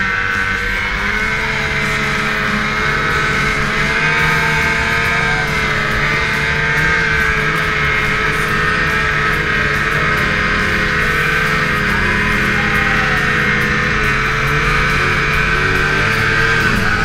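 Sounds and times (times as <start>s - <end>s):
snowmobile engine whining: 0.0s - 17.0s.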